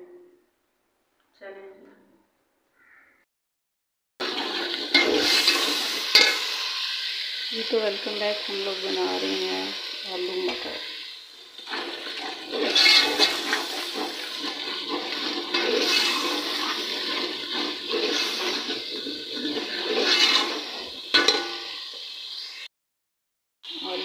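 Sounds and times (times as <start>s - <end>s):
steel ladle stirring in pot: 4.2s - 6.9s, 11.6s - 21.7s
spices sizzling in hot oil: 4.2s - 22.7s, 23.7s - 24.0s.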